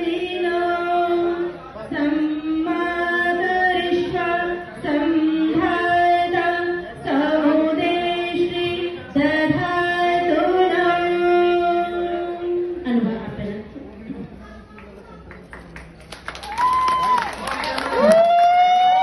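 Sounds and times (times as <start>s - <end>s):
woman singing slow melody: 0.0s - 13.5s.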